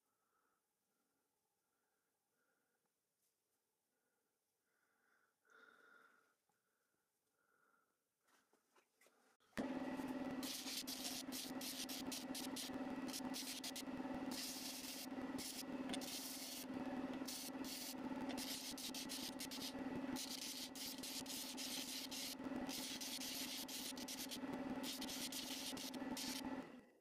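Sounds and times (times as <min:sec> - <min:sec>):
disc sander motor hum: 0:09.6 - 0:27.0
gritty sanding hiss: 0:10.4 - 0:26.5.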